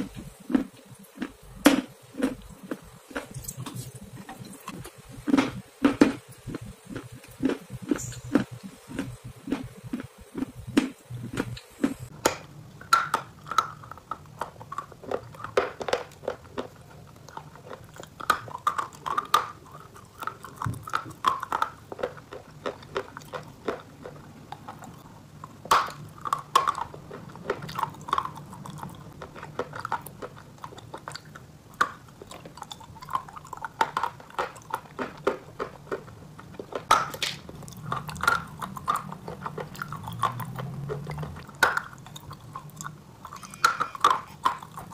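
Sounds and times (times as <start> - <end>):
chewing with sharp crunches: 0.0 - 12.2, 13.3 - 44.9
low hum: 0.0 - 12.8.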